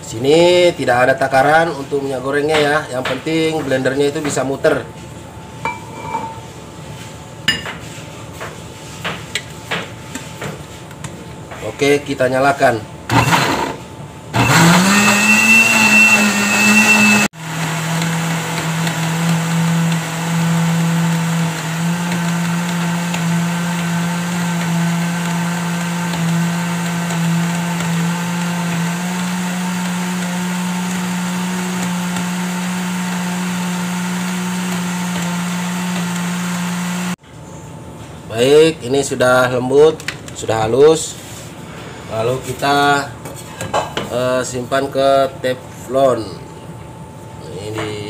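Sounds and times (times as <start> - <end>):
blender motor whining: 13.1 - 37.2.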